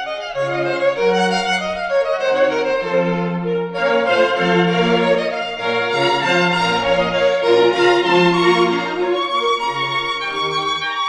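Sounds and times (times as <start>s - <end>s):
slow bowed string music: 0.0s - 11.0s.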